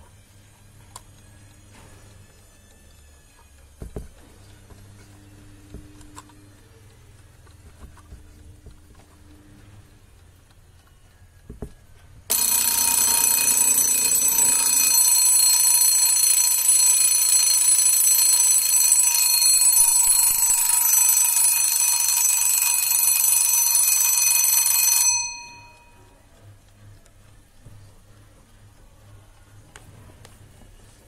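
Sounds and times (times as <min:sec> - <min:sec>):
alarm clock bell ringing: 0:12.3 - 0:26.2.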